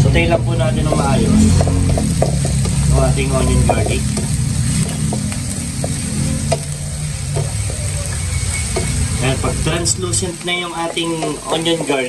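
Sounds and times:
onion and garlic sizzling in oil: 0:00.0 - 0:12.0
sharp tap: 0:00.9 - 0:02.8, 0:03.6 - 0:06.7.

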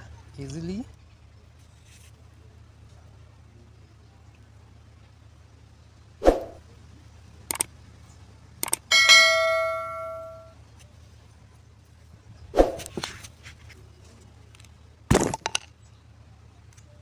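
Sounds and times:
metallic clang ringing: 0:08.9 - 0:10.5.

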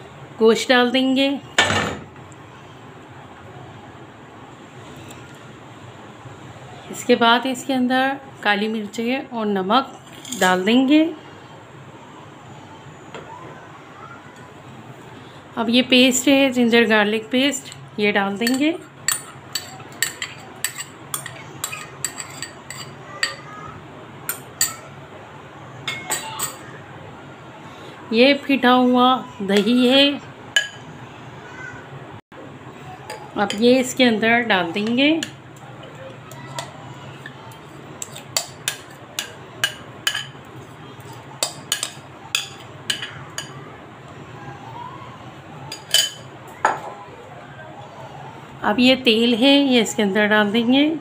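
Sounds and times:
kitchenware clinking: 0:01.5 - 0:02.2, 0:09.9 - 0:10.9, 0:17.6 - 0:23.6, 0:24.3 - 0:24.9, 0:25.8 - 0:26.7, 0:30.6 - 0:30.9, 0:33.1 - 0:43.7, 0:45.7 - 0:47.0
metal spoon clinking on glass: 0:18.4 - 0:23.4, 0:45.7 - 0:46.3.

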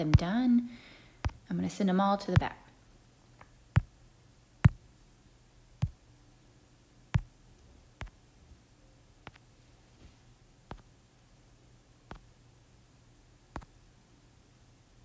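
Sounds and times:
faint low hum: 0:00.0 - 0:15.0
fingertip taps on touchscreen: 0:01.2 - 0:01.5, 0:03.4 - 0:04.0, 0:04.6 - 0:04.8, 0:05.8 - 0:06.0, 0:10.7 - 0:10.9, 0:12.1 - 0:12.3, 0:13.5 - 0:13.7.

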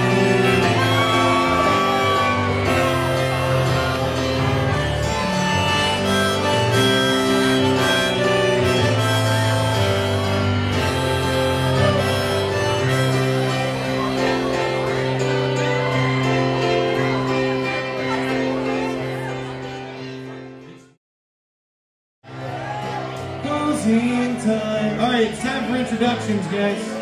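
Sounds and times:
electronic keyboard music: 0:00.0 - 0:20.9.

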